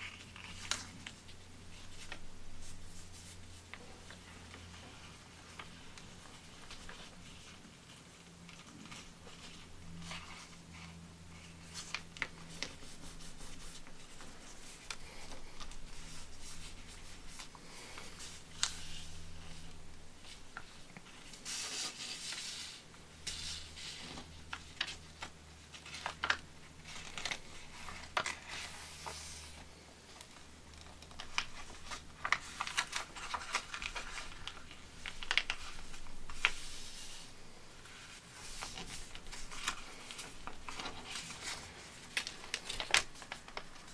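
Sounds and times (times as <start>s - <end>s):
faint low hum: 0.0s - 43.9s
paper rustling and crinkling: 0.0s - 43.9s
sharp ticks of paper folds: 8.5s - 29.4s, 30.7s - 37.2s, 37.9s - 43.9s.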